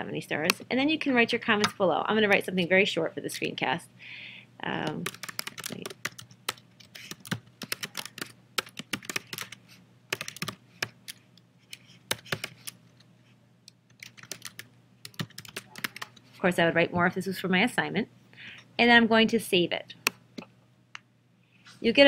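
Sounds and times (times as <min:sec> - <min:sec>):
typing on computer keyboard: 0:04.9 - 0:12.8, 0:13.9 - 0:16.2.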